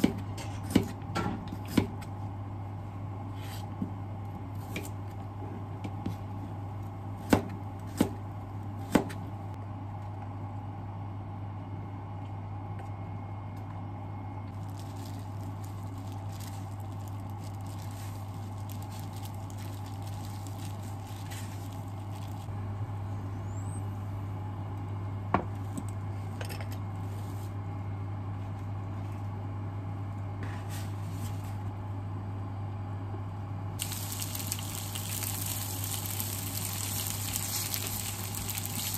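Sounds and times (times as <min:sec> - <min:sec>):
steady low hum: 0:00.0 - 0:38.9
food prep handling sounds: 0:14.5 - 0:22.5.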